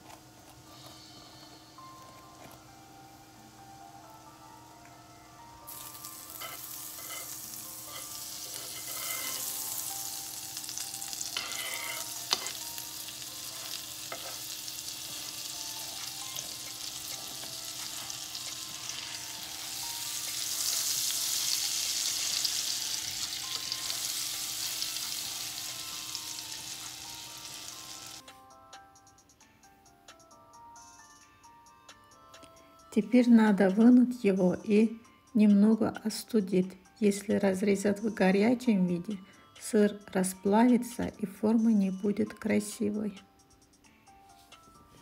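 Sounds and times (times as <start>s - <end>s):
sandwich sizzling in a frying pan: 5.7s - 28.2s
butter knife scraping in a pan: 6.3s - 9.6s, 11.3s - 12.6s.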